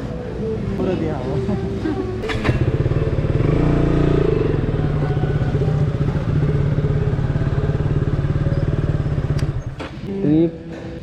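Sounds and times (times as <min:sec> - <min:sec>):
motorcycle engine running: 0:02.2 - 0:09.8.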